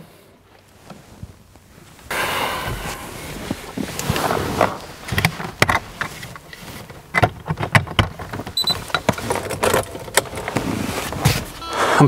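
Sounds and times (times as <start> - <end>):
plastic clicks and knocks: 5.1 - 10.6
short high beep: 11.6 - 12.0.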